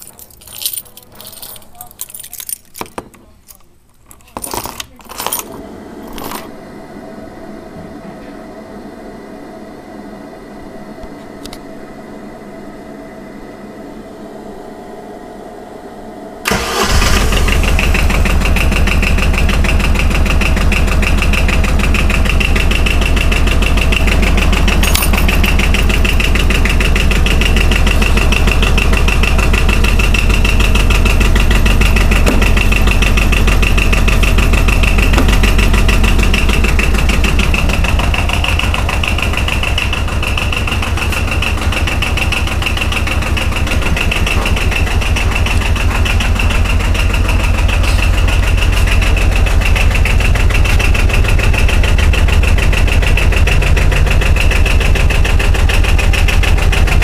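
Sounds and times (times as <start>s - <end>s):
steady hum: 5.1s - 18.0s, 23.3s - 55.3s
diesel engine starting and idling: 5.4s - 57.0s.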